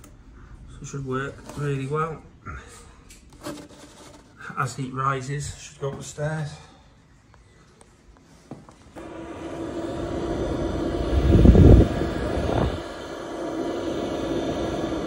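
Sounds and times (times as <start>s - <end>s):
air buffeting microphone: 9.0s - 15.0s
heater blower hum: 9.0s - 15.0s
warm air rushing from nozzle: 9.0s - 15.0s.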